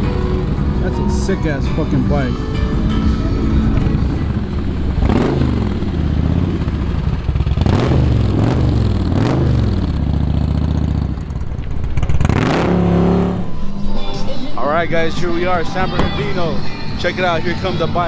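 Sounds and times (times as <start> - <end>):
motorcycles accelerating past: 3.2 - 13.6.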